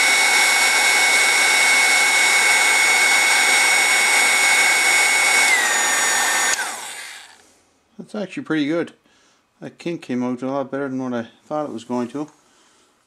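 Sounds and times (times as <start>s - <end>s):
heat gun whirring with whine: 0.0s - 7.5s.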